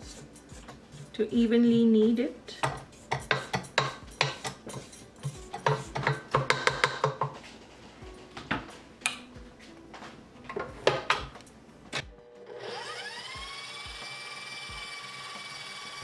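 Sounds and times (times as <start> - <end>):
knocks on steel bowl: 5.6 - 7.4
stand mixer motor whine: 12.4 - 16.0.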